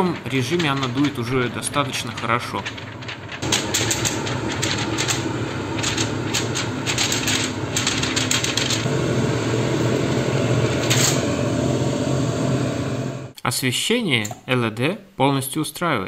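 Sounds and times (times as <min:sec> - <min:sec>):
paper fluttering and rattling: 0:00.0 - 0:08.9
cooker hood fan blowing: 0:00.0 - 0:13.4.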